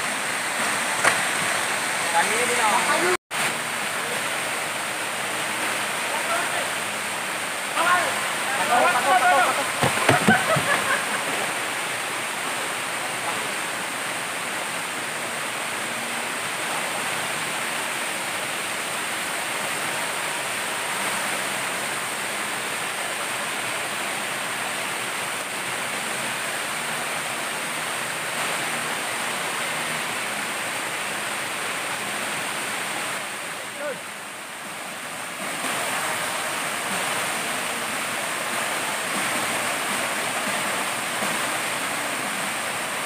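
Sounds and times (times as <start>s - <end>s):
waterfall pouring onto rocks: 0.0s - 43.0s.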